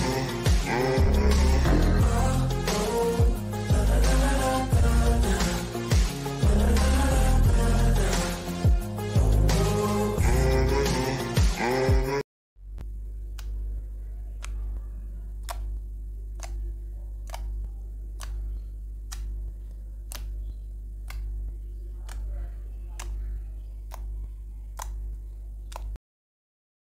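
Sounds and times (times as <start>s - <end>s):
low hum: 0.0s - 2.7s, 12.6s - 26.0s
slime clicking and popping: 15.4s - 16.6s, 17.2s - 18.4s, 19.0s - 22.3s, 23.0s - 23.2s, 23.8s - 26.0s.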